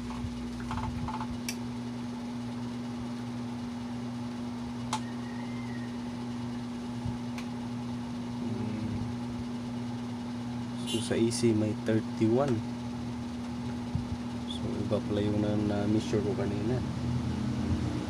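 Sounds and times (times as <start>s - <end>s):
low electrical hum: 0.0s - 18.0s
test probes clicking: 4.9s - 5.1s.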